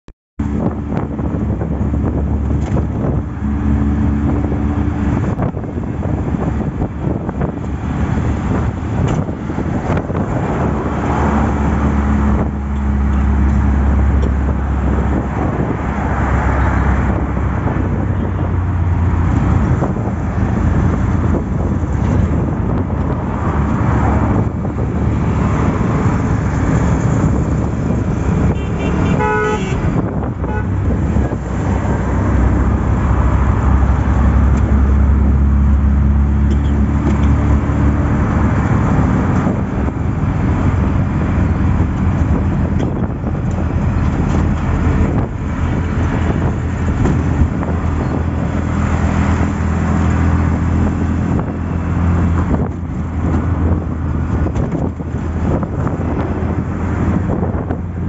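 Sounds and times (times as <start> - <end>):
road and traffic noise: 0.4 - 58.0.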